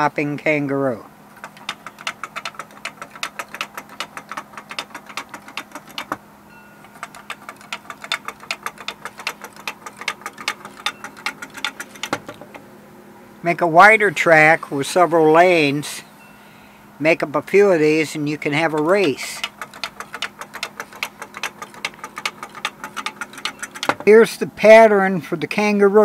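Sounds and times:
wooden toy clacking on track: 1.4 - 6.2, 6.8 - 12.6, 17.8 - 24.2.

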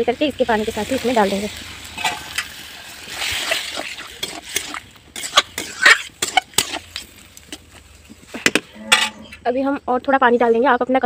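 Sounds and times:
liquid splashing and hissing in pan: 0.1 - 8.4.

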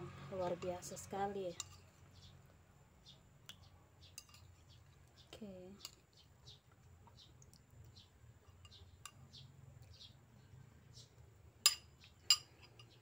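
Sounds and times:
cutlery clinking against bowl: 4.2 - 4.5, 11.7 - 13.0.

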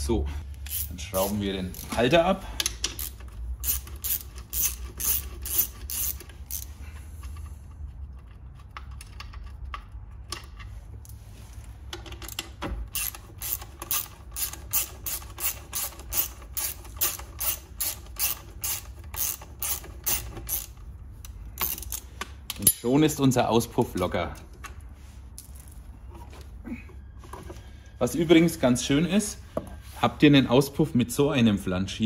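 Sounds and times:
hand ratchet clicking: 0.5 - 7.5, 12.1 - 22.9.

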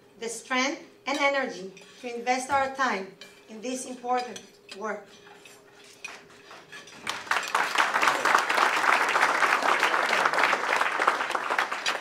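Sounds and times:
audience applauding: 7.1 - 12.0.

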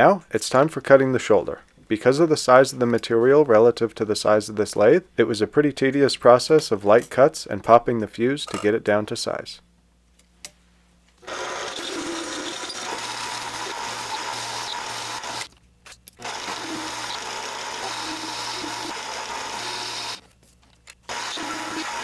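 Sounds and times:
lathe motor hum: 11.2 - 15.5, 16.2 - 20.2, 21.1 - 22.0
lathe tool cutting steel: 11.2 - 15.5, 16.2 - 20.2, 21.1 - 22.0.

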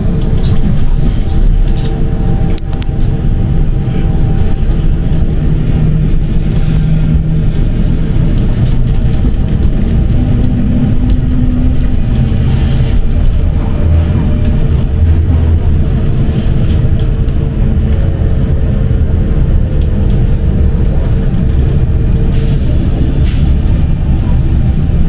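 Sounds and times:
tram wheels rumbling on track: 0.0 - 25.0.

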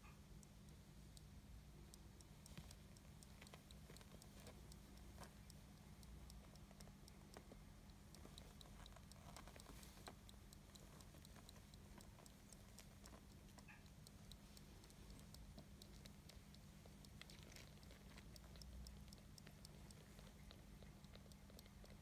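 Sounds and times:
kittens suckling wet clicking: 0.0 - 22.0.

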